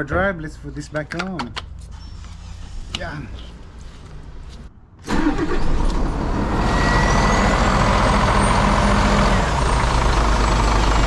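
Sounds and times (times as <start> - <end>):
diesel truck engine idling: 7.3 - 11.0.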